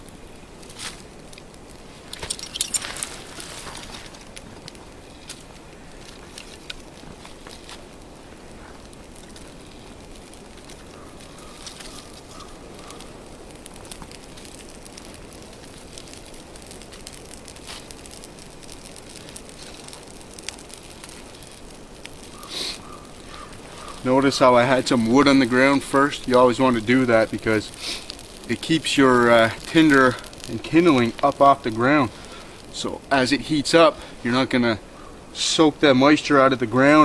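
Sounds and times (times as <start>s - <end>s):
fire hissing and crackling: 0.0s - 37.0s.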